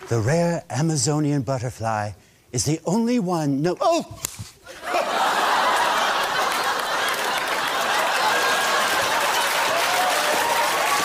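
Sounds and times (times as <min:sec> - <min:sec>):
studio audience laughing: 0:04.7 - 0:10.0
audience applauding: 0:05.0 - 0:11.0.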